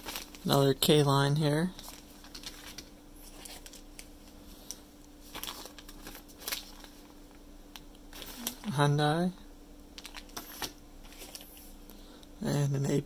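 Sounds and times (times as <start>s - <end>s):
plastic bags crinkling: 0.0s - 0.9s, 1.6s - 7.2s, 8.1s - 8.8s, 10.0s - 11.7s.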